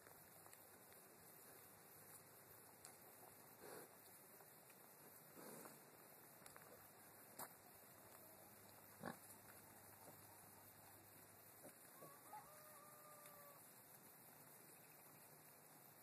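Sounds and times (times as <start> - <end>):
rooster crowing: 12.0 - 13.6.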